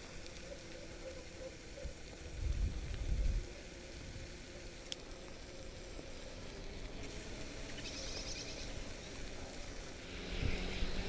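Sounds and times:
bicycle tyres rumbling: 0.0s - 11.0s
wind on camera: 1.8s - 3.5s.

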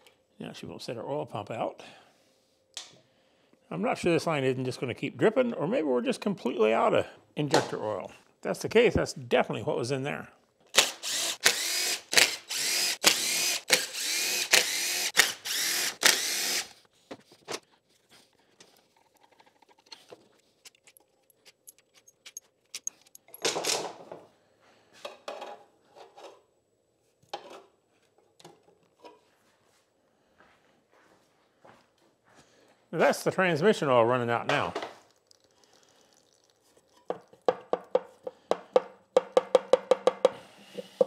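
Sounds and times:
cordless power driver whirring: 10.8s - 16.7s.

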